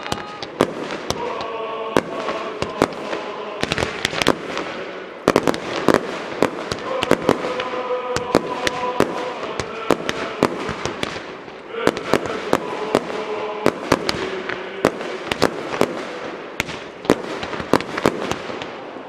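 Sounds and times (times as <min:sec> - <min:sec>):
fireworks bangs: 0:00.0 - 0:19.0
hiss and crackle of fireworks: 0:00.0 - 0:19.0.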